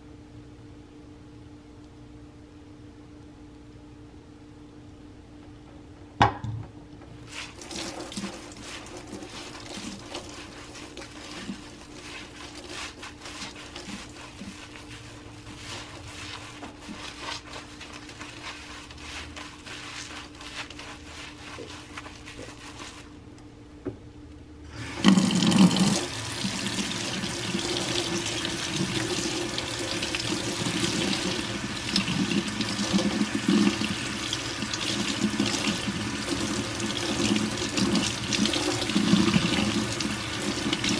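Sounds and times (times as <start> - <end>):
soapy sponge squeezed crackling: 7.2 - 23.2, 24.8 - 40.9
tap water running into sink: 7.4 - 11.6, 24.8 - 40.9.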